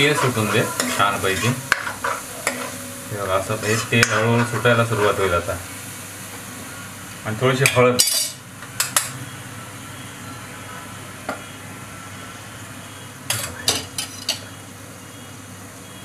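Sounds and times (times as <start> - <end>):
spoon scraping pan: 0.0 - 5.3
sauce sizzling in oil: 0.0 - 16.0.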